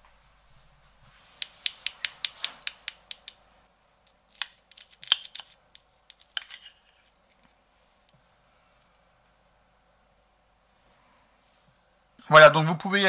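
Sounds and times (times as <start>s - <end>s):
spoon tapping sugar crust: 1.4s - 3.4s, 4.1s - 6.8s
sharp clicks of spoon on crust: 4.1s - 6.7s.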